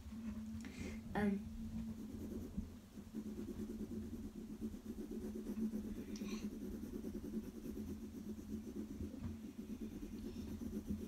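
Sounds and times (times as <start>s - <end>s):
pencil shading on paper: 1.8s - 11.0s.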